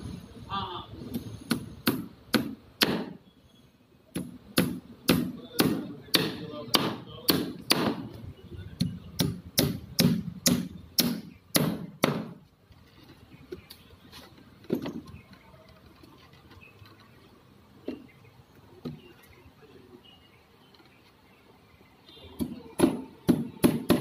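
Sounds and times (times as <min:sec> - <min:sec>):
hammer striking wooden boards: 0:01.5 - 0:03.2, 0:04.1 - 0:08.2, 0:08.8 - 0:12.4, 0:22.4 - 0:24.0.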